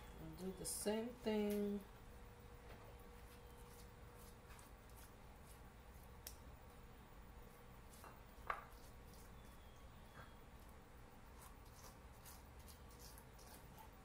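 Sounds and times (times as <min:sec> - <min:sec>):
pastry brush dabbing and scraping: 0:03.2 - 0:06.4, 0:07.5 - 0:09.7, 0:11.3 - 0:14.0.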